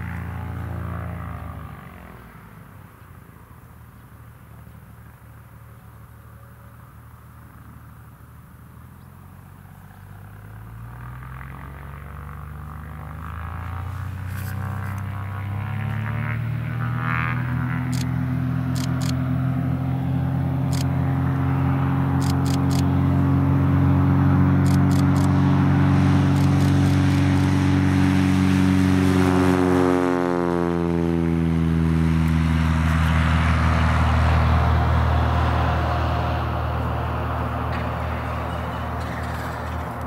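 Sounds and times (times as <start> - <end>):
light aircraft engine and propeller: 0.0 - 40.0.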